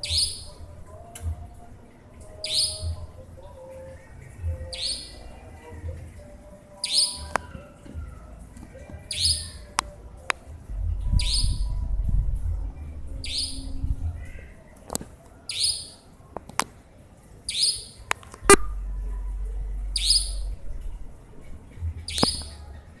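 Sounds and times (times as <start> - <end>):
nightjar high-pitched call: 0.0 - 0.6, 2.4 - 3.0, 4.6 - 5.3, 6.8 - 7.5, 9.1 - 9.8, 11.2 - 11.7, 13.2 - 13.8, 15.5 - 16.0, 17.5 - 18.1, 19.9 - 20.6, 22.1 - 22.7.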